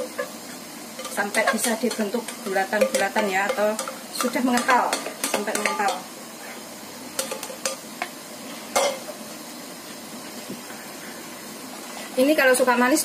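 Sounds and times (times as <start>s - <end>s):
spoon scraping and knocking pan: 0.0s - 6.1s, 7.1s - 9.2s.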